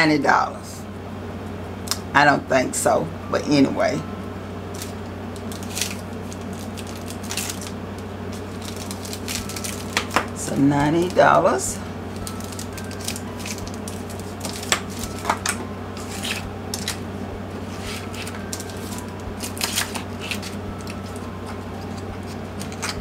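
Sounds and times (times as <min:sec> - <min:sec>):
steady low hum: 0:00.0 - 0:23.0
packaging clicks and rustles: 0:04.8 - 0:10.3, 0:12.2 - 0:17.0, 0:17.7 - 0:23.0.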